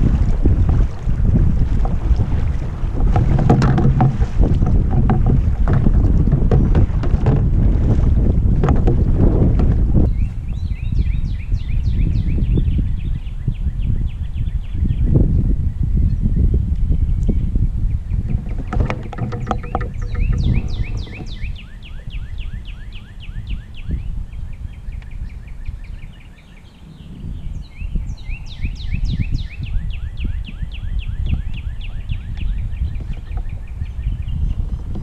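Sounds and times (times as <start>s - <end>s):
wind rumble on microphone: 0.0s - 35.0s
songbird singing: 8.7s - 35.0s.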